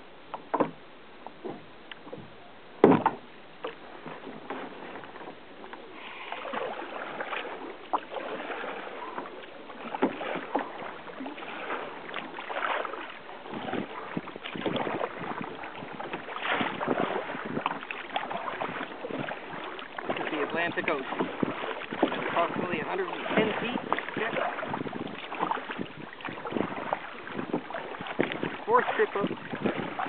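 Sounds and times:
water slapping against kayak hull: 0:00.3 - 0:30.0.

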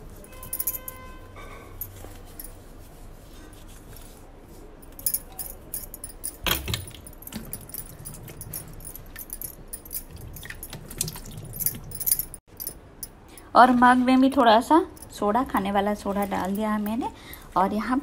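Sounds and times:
glass bangles clinking: 0:00.0 - 0:02.7, 0:04.8 - 0:13.5.

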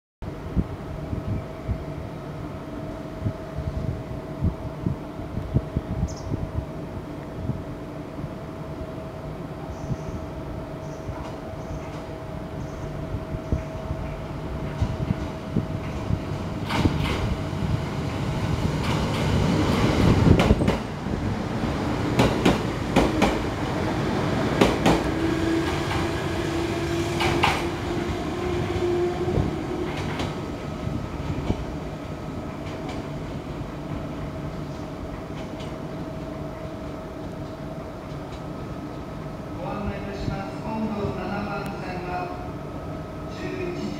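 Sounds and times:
low train rumble: 0:00.2 - 0:43.9
train wheels clacking over rail joints: 0:22.2 - 0:23.4, 0:24.6 - 0:26.2, 0:27.0 - 0:27.7.

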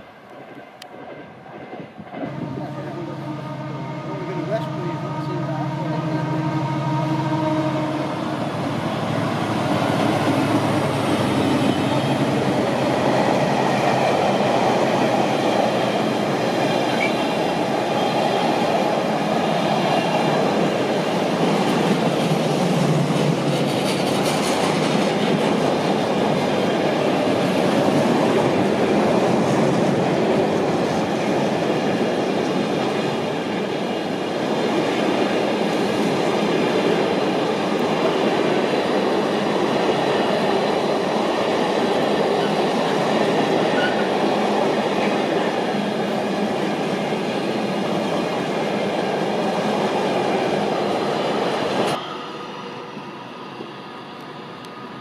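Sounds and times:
wagons rumbling over rails: 0:00.0 - 0:52.8
locomotive engine drone: 0:02.2 - 0:23.5.

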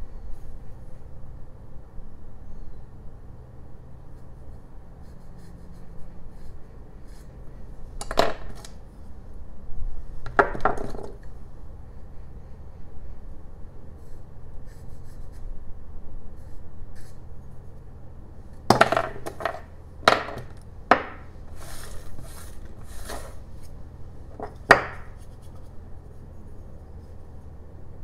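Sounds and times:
wood chips swept by hand: 0:21.5 - 0:23.4.

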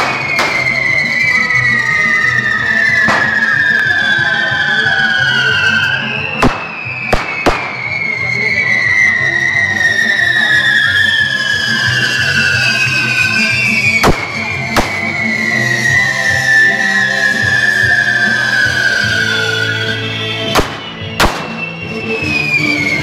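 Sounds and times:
firecracker bangs: 0:00.0 - 0:01.4, 0:02.4 - 0:09.0, 0:11.1 - 0:19.6, 0:20.4 - 0:21.9
fireworks shrill falling whistles: 0:00.0 - 0:23.0.

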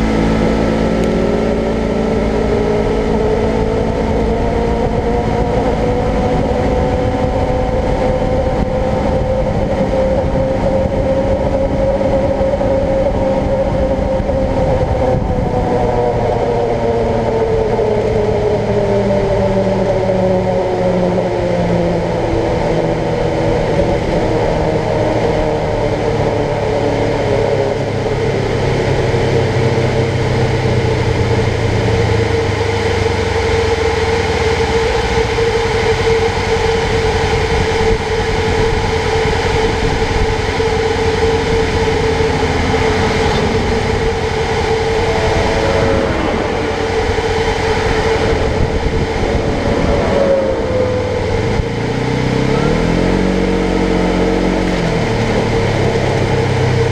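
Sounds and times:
utility vehicle engine idling: 0:00.0 - 0:56.9
dump truck passing: 0:36.6 - 0:56.9.

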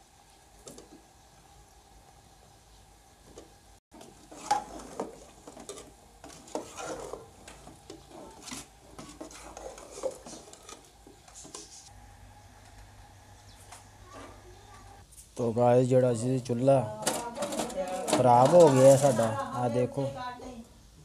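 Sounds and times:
metal ladle scraping a pot: 0:04.0 - 0:11.8.

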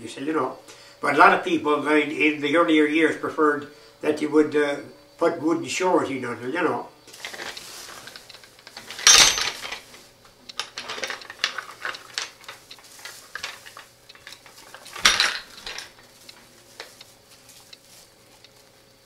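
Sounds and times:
metal pulley blocks clanking: 0:07.2 - 0:09.9, 0:10.6 - 0:16.0.

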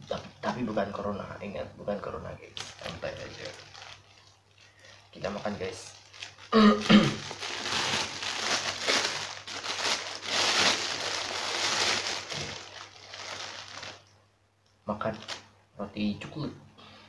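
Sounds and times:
plastic wrapper crinkling: 0:02.4 - 0:14.2, 0:15.1 - 0:15.5.

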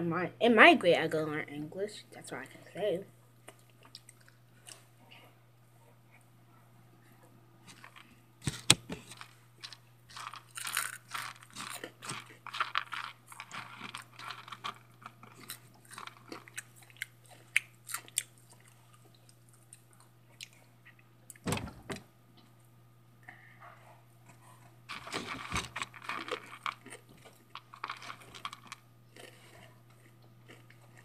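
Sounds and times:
person crunching snacks: 0:07.7 - 0:20.6, 0:24.9 - 0:31.0.

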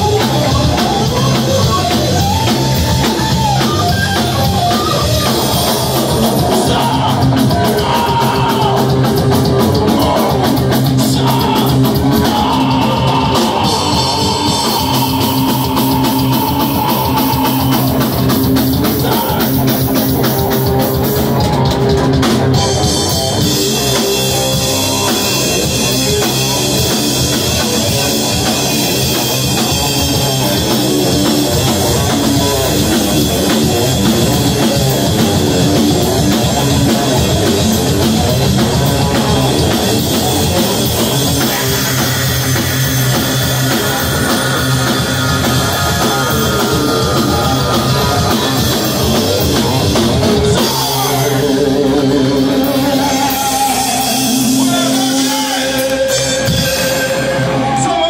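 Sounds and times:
metal band playing live: 0:00.0 - 0:58.0.

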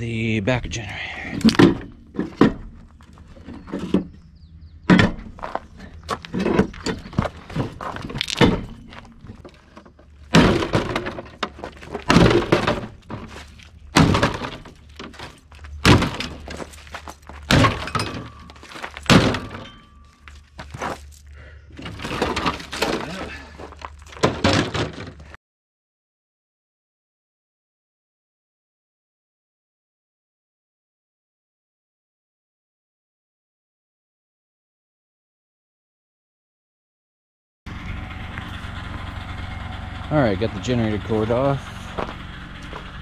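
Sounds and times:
breaking crunches: 0:05.3 - 0:25.3
sledgehammer hitting metal box: 0:06.3 - 0:09.4, 0:10.3 - 0:16.8, 0:17.4 - 0:19.9.

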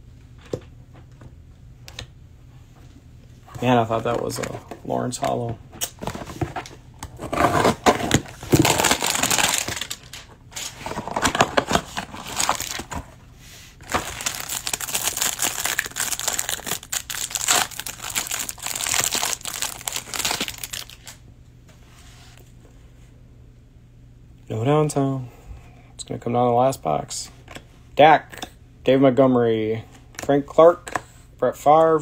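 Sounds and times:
cardboard box tearing: 0:07.2 - 0:09.9
plastic wrapper crinkling: 0:07.6 - 0:13.0, 0:13.8 - 0:21.2.

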